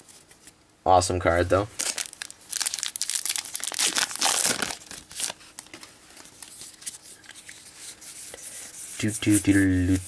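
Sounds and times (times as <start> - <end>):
foil wrapper tearing and crinkling: 1.8 - 6.6.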